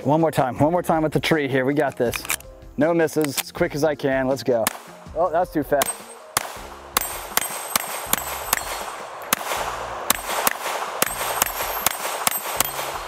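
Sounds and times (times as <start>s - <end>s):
pistol shots: 4.6s - 5.1s, 5.8s - 13.0s
steel plates ringing: 5.8s - 9.4s, 10.1s - 13.0s.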